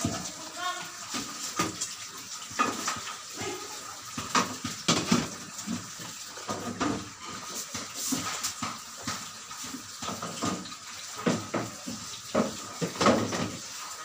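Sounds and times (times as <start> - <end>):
water splashing and sloshing: 0.0 - 14.0.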